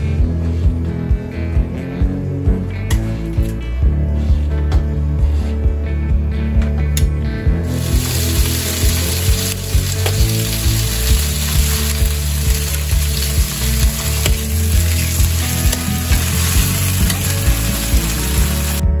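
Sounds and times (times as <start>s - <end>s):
pork chops sizzling in pan: 7.7s - 18.8s.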